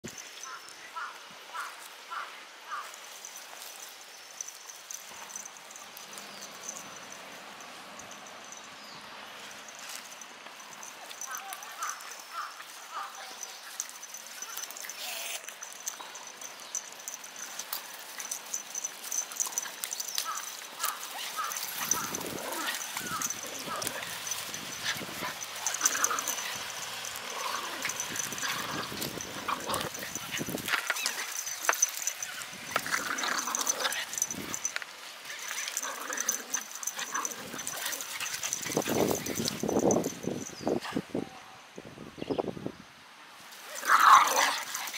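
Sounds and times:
dogs scuffling: 9.4s - 40.6s.

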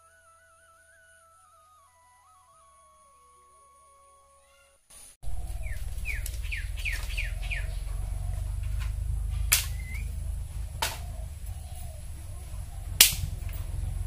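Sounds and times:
bird chirping: 0.0s - 14.0s
low steady rumble: 5.2s - 14.0s
dry sticks cracking: 5.3s - 14.0s.

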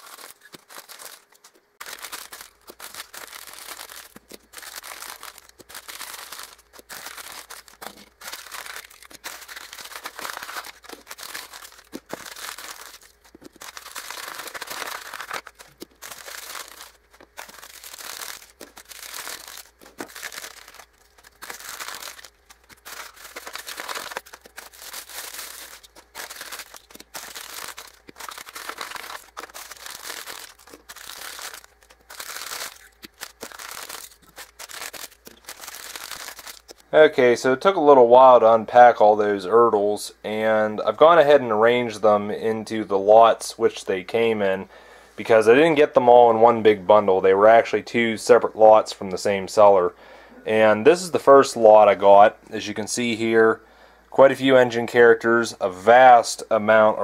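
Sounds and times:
paper crumpling and rustling: 0.0s - 36.8s.

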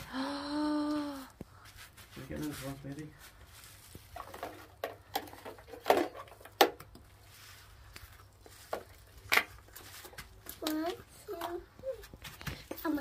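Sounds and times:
plastic eggs clacking together: 4.1s - 7.0s.

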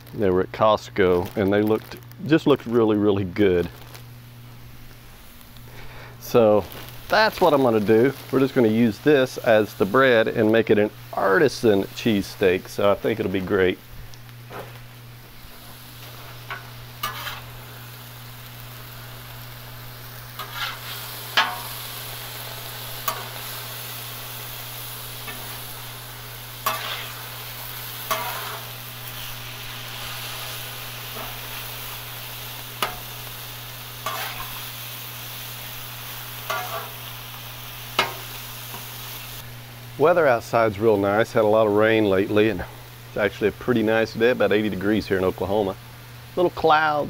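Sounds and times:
steak sizzling on a griddle: 1.0s - 47.0s
metal spatulas clacking on griddle: 36.5s - 36.9s.

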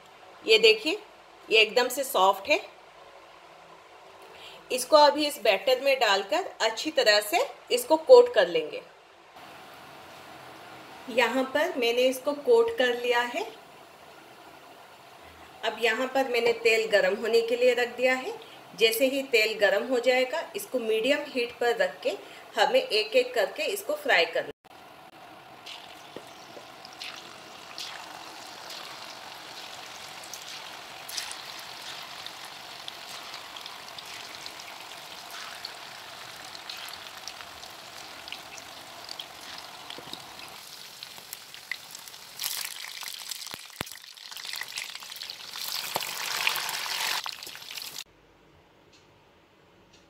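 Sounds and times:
batter deep-frying in hot oil: 25.6s - 48.1s.

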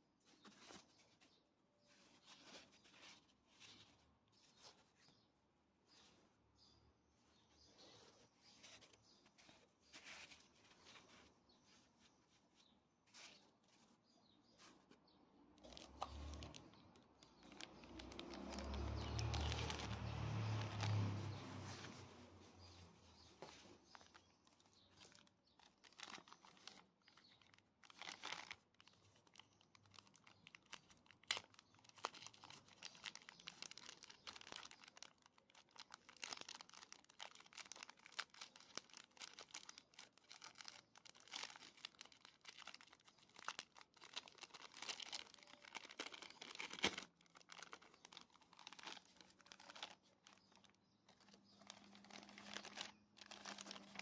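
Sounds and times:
plastic bag crinkling: 15.6s - 54.0s.

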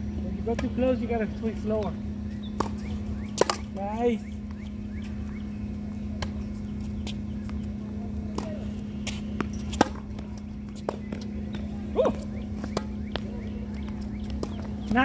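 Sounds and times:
steady low hum: 0.0s - 15.0s
tennis balls struck by racquets: 0.4s - 15.0s
tennis ball bouncing on hard court: 1.8s - 3.8s, 8.3s - 15.0s.

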